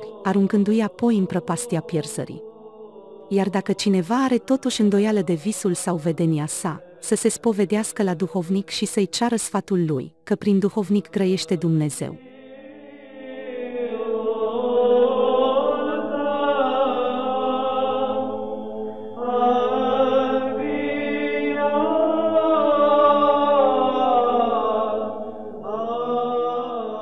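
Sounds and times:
voices chanting long notes: 0:12.2 - 0:27.0.

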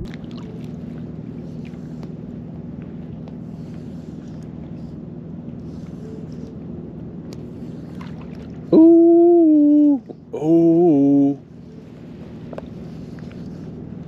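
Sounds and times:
steady low drone: 0:00.0 - 0:14.0
person humming long held notes: 0:08.7 - 0:11.4.

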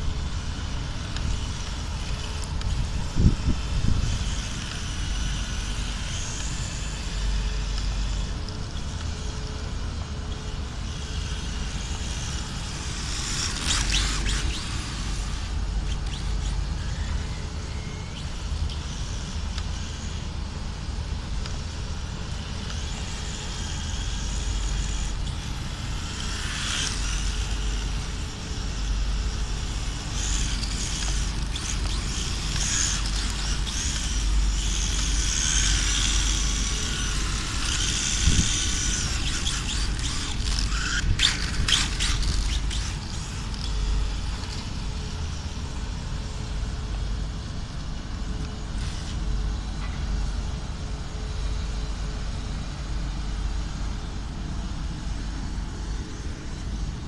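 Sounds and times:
electric rc car motor whining: 0:00.0 - 0:46.8, 0:47.8 - 0:49.7.

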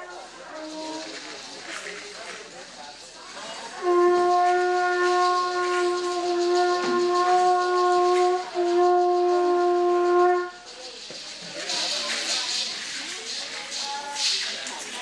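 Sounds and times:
conch shell trumpet blasts: 0:00.0 - 0:02.3, 0:03.7 - 0:10.8.

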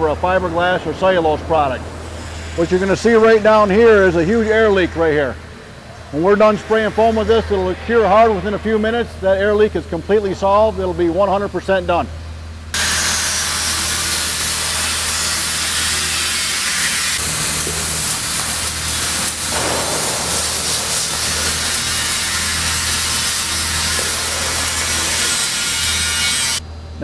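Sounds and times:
spray foam gun hissing: 0:12.8 - 0:25.6.

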